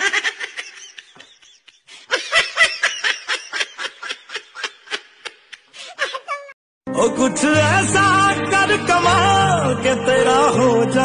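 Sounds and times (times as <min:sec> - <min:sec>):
person laughing hard: 0:00.0 - 0:06.6.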